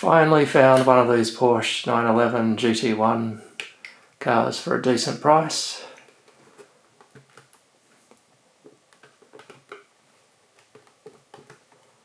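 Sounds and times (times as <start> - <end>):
plastic case clicking and tapping: 7.0 - 7.6, 8.7 - 9.9, 10.6 - 11.9.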